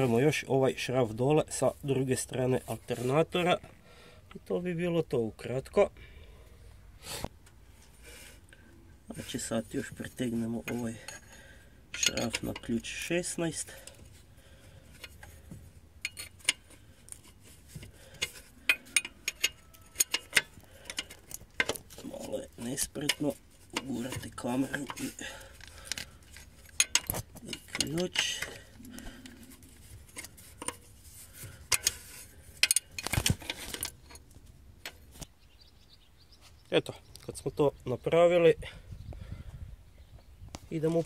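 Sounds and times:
wrench clinking on metal: 0:10.7 - 0:13.0, 0:16.0 - 0:17.4, 0:18.1 - 0:21.8, 0:26.6 - 0:28.7, 0:31.6 - 0:34.2.

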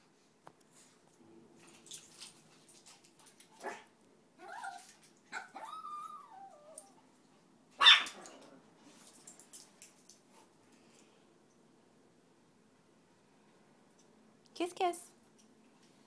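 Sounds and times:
small dogs whining: 0:04.4 - 0:07.0
dog barking sharply: 0:07.8 - 0:08.2.

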